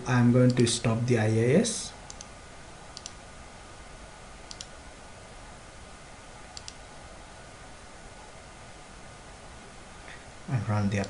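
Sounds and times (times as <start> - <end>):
computer mouse button clicking: 4.5 - 4.7, 6.6 - 6.8.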